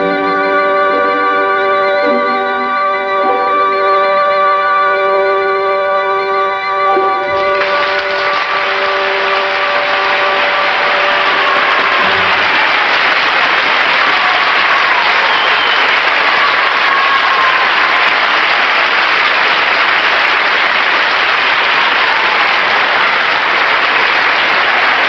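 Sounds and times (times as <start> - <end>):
audience applauding: 5.4 - 25.0.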